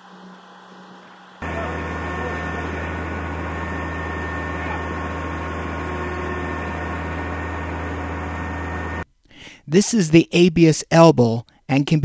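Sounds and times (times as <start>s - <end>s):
large engine humming: 1.4s - 9.0s.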